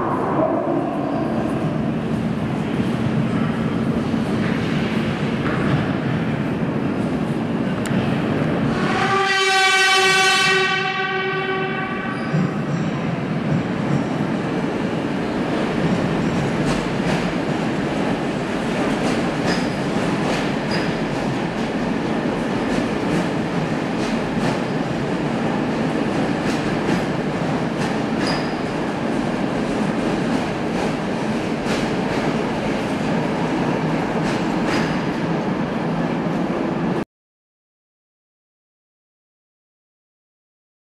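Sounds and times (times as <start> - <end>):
subway train horn: 0.0 - 2.0, 8.5 - 12.5.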